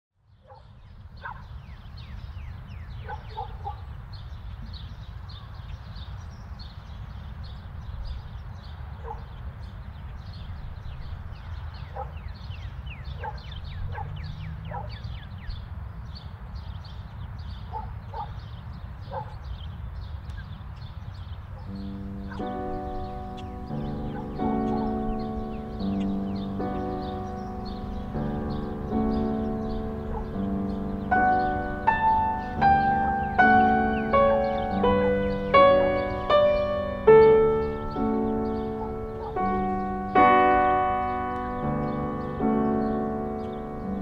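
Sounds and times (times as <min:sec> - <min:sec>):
high falling chirps: 0:21.7 - 0:44.0.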